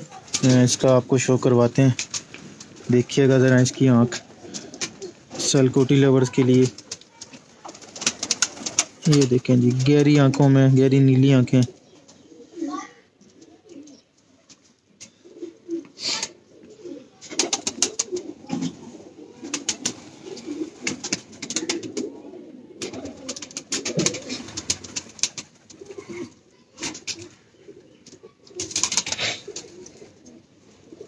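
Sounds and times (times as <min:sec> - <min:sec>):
pigeons cooing: 0:00.0 - 0:10.2, 0:11.1 - 0:14.4, 0:15.0 - 0:31.0
sharp clicks and rustles: 0:06.5 - 0:10.2.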